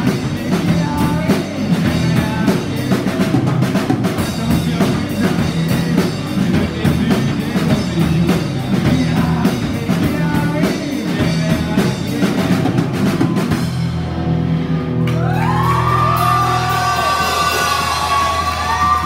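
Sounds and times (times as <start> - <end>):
bass guitar: 0.0 - 19.0
drum kit: 0.0 - 19.0.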